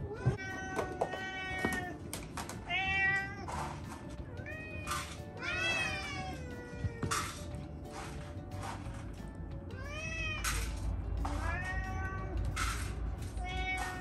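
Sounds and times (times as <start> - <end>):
cats meowing: 0.0 - 7.4, 9.7 - 14.0.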